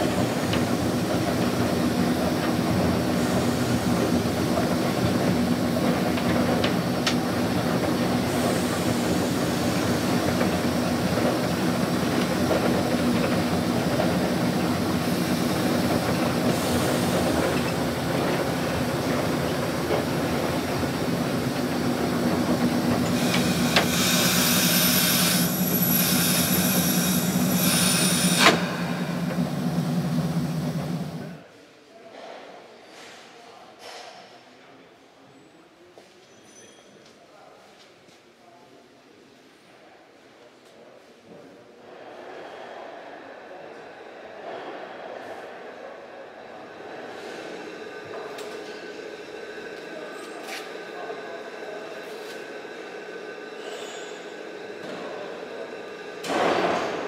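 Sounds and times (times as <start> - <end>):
wheels rattling on rails: 0.0 - 31.4
diesel engine humming: 5.4 - 31.4
air hiss: 14.4 - 31.4.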